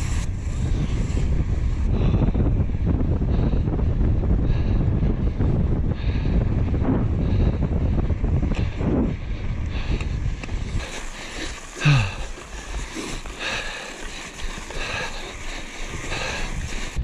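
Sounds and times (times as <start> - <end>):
tyres hissing over snow: 0.0 - 1.4, 9.7 - 17.0
wind buffeting microphone: 0.0 - 17.0.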